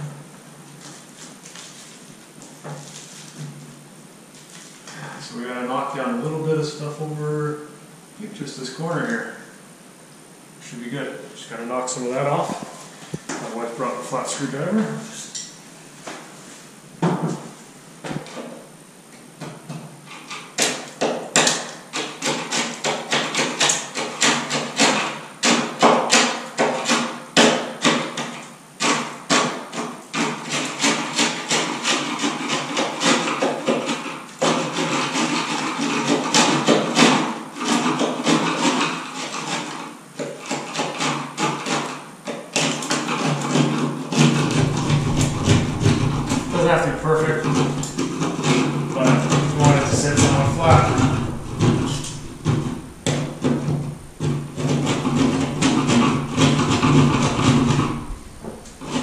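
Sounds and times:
screwdriver scraping ceiling: 0:20.1 - 0:27.2, 0:27.8 - 0:59.0.

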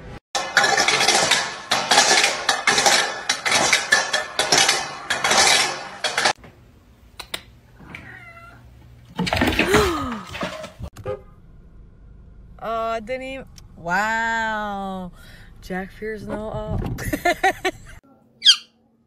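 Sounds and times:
cat meowing: 0:07.8 - 0:08.7.

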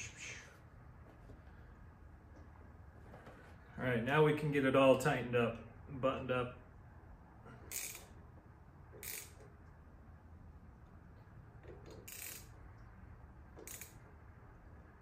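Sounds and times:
hand tool metallic clicks and rattles: 0:13.6 - 0:14.0.

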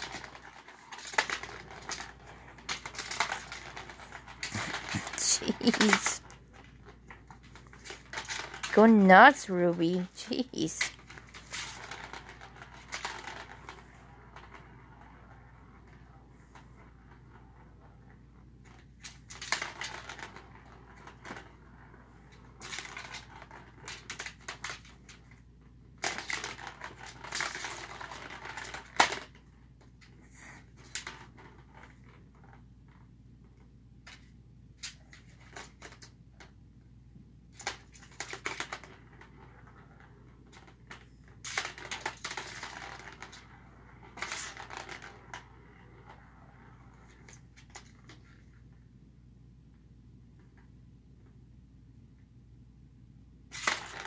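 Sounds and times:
plastic balls rattling in toy tracks: 0:00.0 - 0:32.7, 0:37.5 - 0:48.6, 0:53.5 - 0:54.0.

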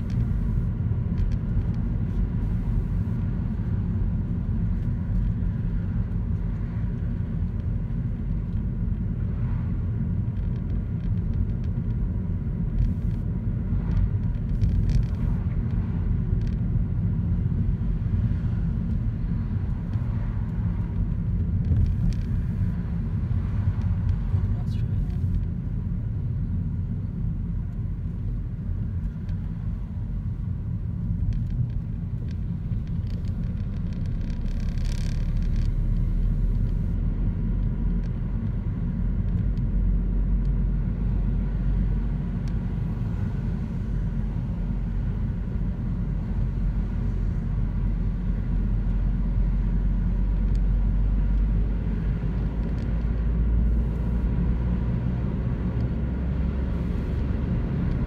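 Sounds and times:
engine and road rumble: 0:00.0 - 0:58.0.

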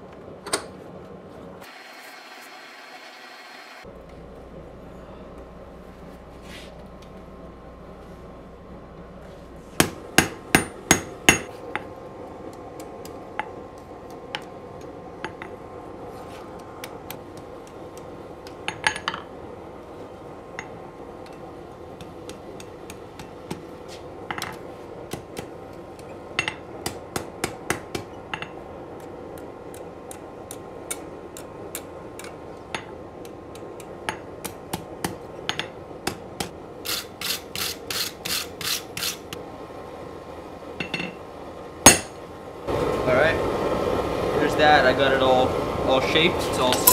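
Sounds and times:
hammer striking hot steel: 0:09.8 - 0:15.6, 0:16.4 - 0:19.3, 0:20.5 - 0:39.4, 0:41.8 - 0:42.2, 0:46.5 - 0:46.9.

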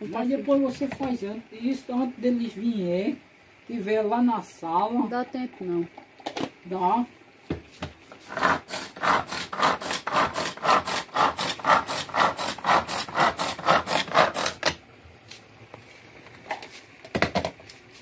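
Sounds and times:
rhythmic rasping strokes: 0:08.3 - 0:14.6.

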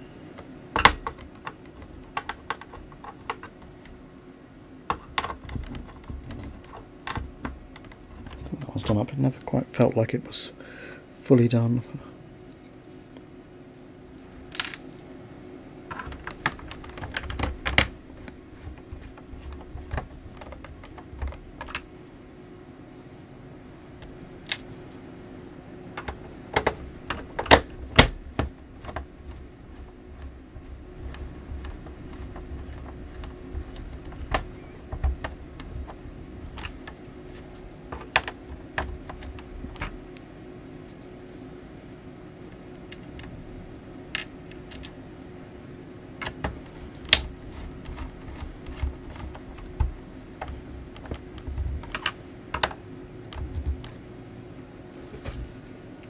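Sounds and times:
hands handling plastic laptop case: 0:00.8 - 0:03.9, 0:04.9 - 0:09.0, 0:15.9 - 0:21.9, 0:26.0 - 0:40.1, 0:46.2 - 0:54.1.

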